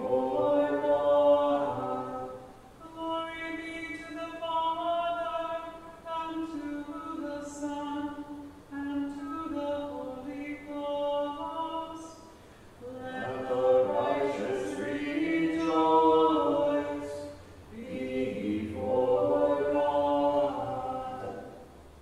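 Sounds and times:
voices chanting plainsong: 0:00.0 - 0:04.1, 0:09.9 - 0:21.8
singer breath: 0:12.2 - 0:12.8, 0:17.3 - 0:17.7.

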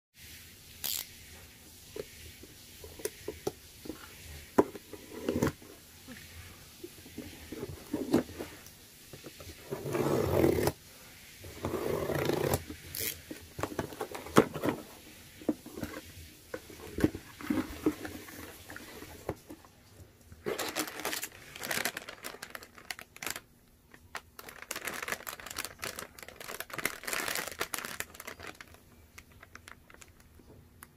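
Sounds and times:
plastic bag crinkling: 0:20.4 - 0:30.4.

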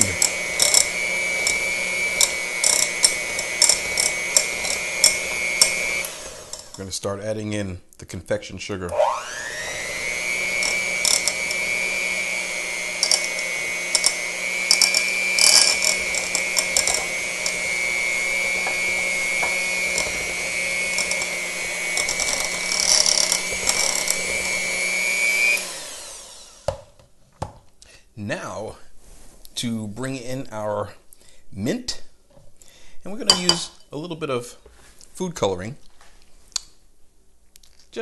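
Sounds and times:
beaters rattling in bowl: 0:00.0 - 0:06.8, 0:10.4 - 0:11.7, 0:12.9 - 0:24.6
electric hand mixer whine: 0:00.0 - 0:06.8, 0:08.9 - 0:27.0.

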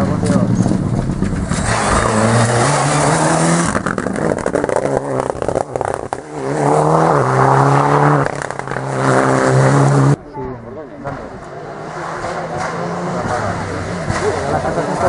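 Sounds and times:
exhaust crackles and pops: 0:00.0 - 0:02.4, 0:03.4 - 0:06.3
rally car engine revving: 0:00.0 - 0:15.0.

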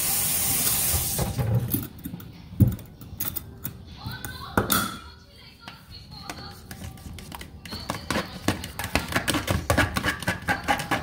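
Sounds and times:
fork whisking in plastic container: 0:06.2 - 0:11.0.

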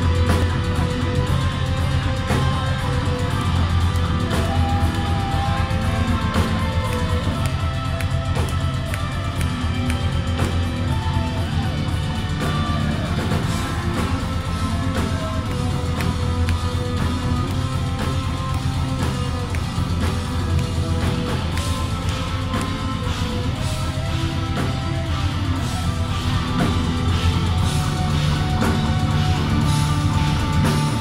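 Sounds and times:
distorted electric guitars: 0:00.0 - 0:31.0
heavy bass and drums: 0:00.0 - 0:31.0.

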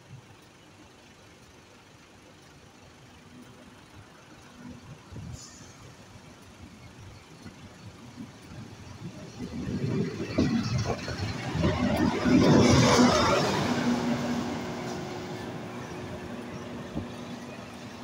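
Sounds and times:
locomotive engine humming: 0:00.0 - 0:18.0
wheels clattering over rail joints: 0:04.8 - 0:18.0.

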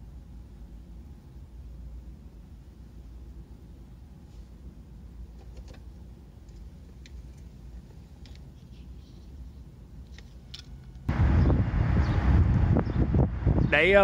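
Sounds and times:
faint outdoor rumble: 0:00.0 - 0:14.0
wind buffeting microphone: 0:11.1 - 0:14.0.

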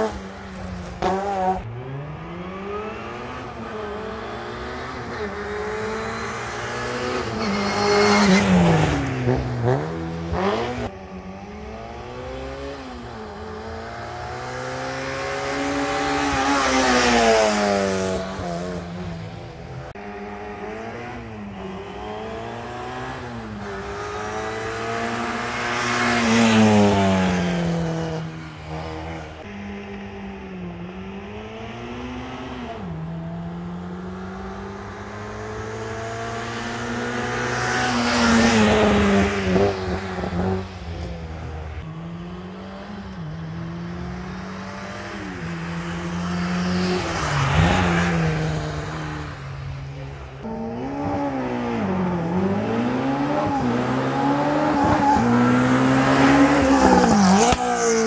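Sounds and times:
racing car engines accelerating: 0:00.0 - 0:58.0.

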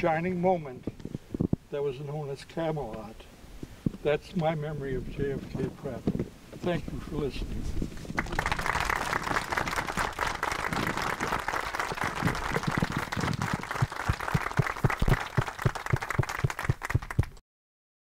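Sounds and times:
audience applauding: 0:08.1 - 0:17.4.

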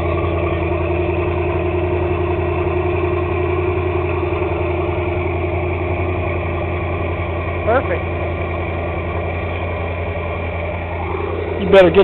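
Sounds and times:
boat engine idling: 0:00.0 - 0:12.0.

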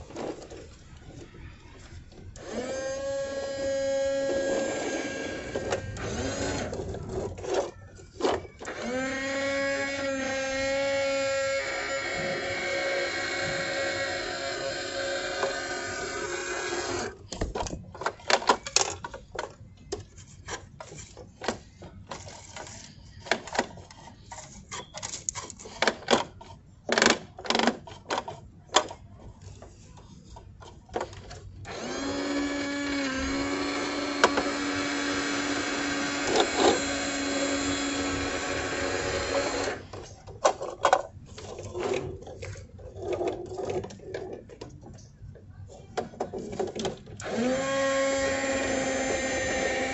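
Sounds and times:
toy motor whirring: 0:02.3 - 0:17.3, 0:18.0 - 0:28.4, 0:31.2 - 0:40.0, 0:47.2 - 0:49.9
plastic clicks and clacks: 0:17.3 - 0:31.5, 0:39.6 - 0:47.3.

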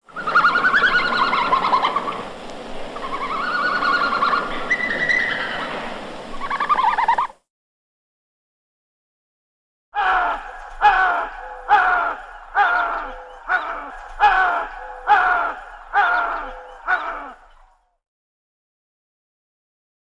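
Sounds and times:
red panda trilling calls: 0:00.1 - 0:02.2, 0:03.0 - 0:07.4, 0:10.0 - 0:17.6.

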